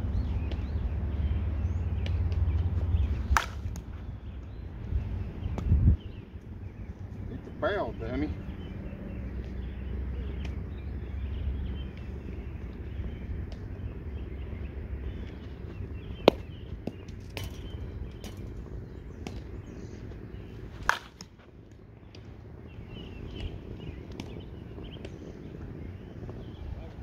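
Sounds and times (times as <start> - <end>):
bat cracking softball: 3.1 - 3.9, 16.2 - 18.6, 20.5 - 22.2.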